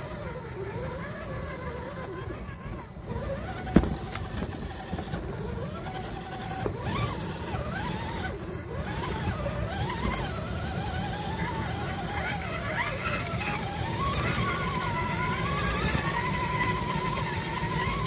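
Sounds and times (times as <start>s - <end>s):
electric motor whining: 0.0s - 18.0s.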